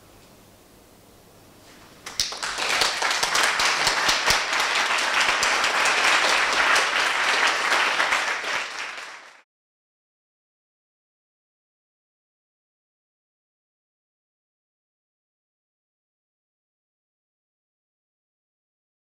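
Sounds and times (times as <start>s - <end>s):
audience applauding: 2.0s - 9.4s.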